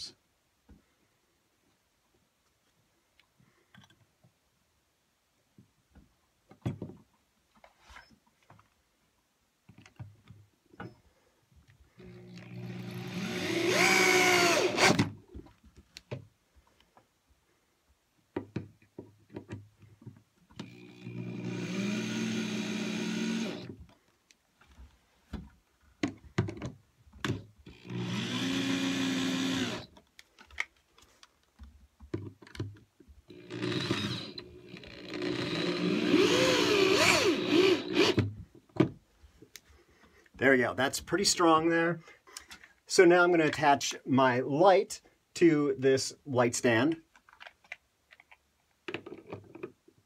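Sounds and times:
drill driving screws: 0:12.0 - 0:15.2, 0:20.6 - 0:23.8, 0:27.6 - 0:30.0, 0:33.3 - 0:38.3.

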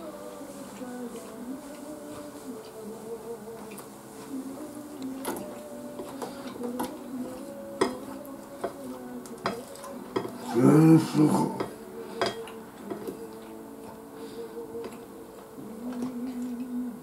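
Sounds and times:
tableware clinking on dishes: 0:07.8 - 0:08.8, 0:11.6 - 0:13.1
short voiced hum: 0:10.4 - 0:12.2.

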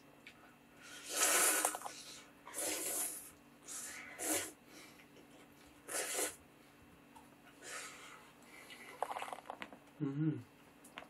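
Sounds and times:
noodles slurped: 0:00.9 - 0:04.6, 0:05.9 - 0:06.4, 0:08.6 - 0:09.6.

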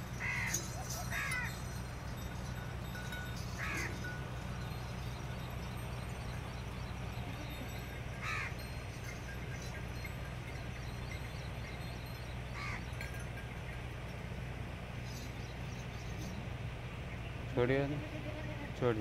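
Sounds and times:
crow cawing: 0:00.2 - 0:01.6, 0:03.6 - 0:04.0, 0:08.2 - 0:08.7, 0:12.6 - 0:12.9.

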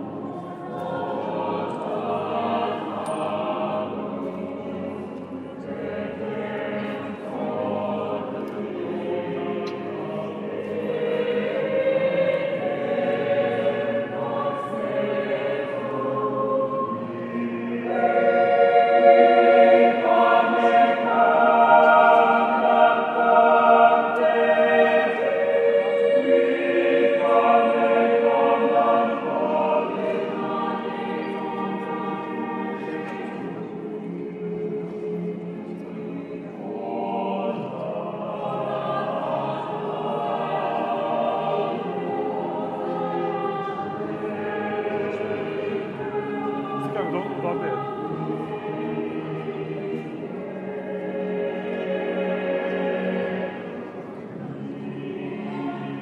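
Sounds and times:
choir singing a cappella: 0:00.0 - 0:56.0.

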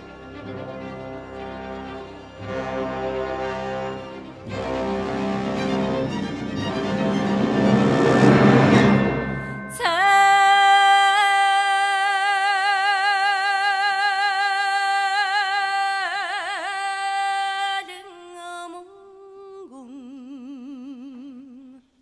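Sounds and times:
woman singing unaccompanied: 0:09.7 - 0:22.0.

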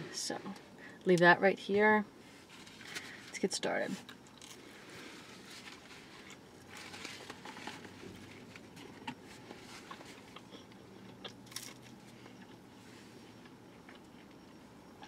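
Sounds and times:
chewing: 0:09.8 - 0:12.6.

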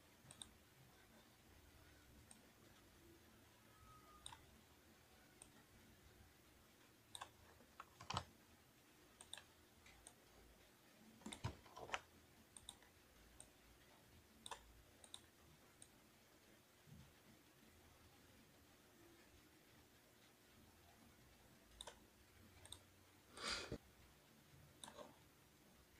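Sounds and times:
mouse and keyboard clicks: 0:00.2 - 0:00.6, 0:04.1 - 0:04.5, 0:07.1 - 0:08.3, 0:09.2 - 0:10.2, 0:11.2 - 0:13.5, 0:14.4 - 0:15.9, 0:21.7 - 0:22.0, 0:22.6 - 0:22.9, 0:24.8 - 0:25.2.

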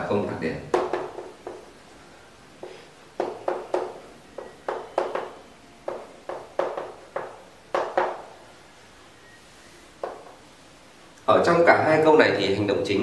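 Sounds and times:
chalk tapping on chalkboard: 0:00.7 - 0:01.7, 0:02.6 - 0:08.3, 0:10.0 - 0:10.4.

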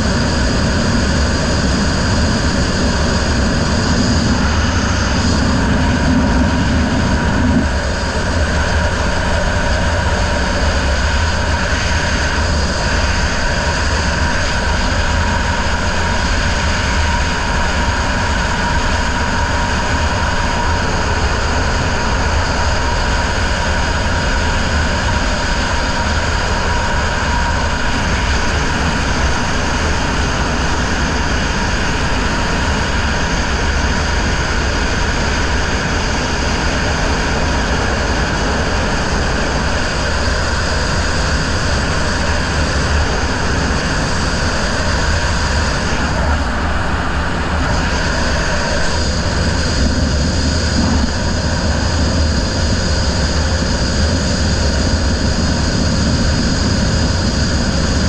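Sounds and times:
wind rushing: 0:00.0 - 0:10.6, 0:37.6 - 0:55.0
outboard motor running at speed: 0:00.0 - 0:58.0.

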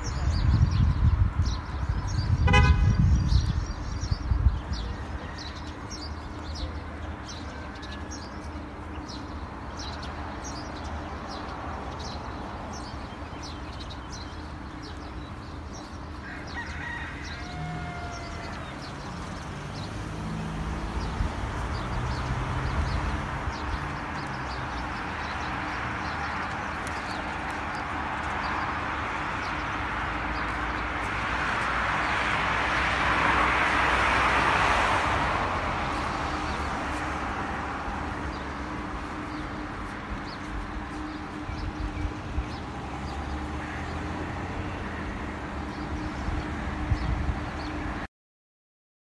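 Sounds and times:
small birds chirping: 0:00.0 - 0:32.1
low hum of traffic: 0:00.0 - 0:48.1
rooster crowing: 0:16.2 - 0:18.9.

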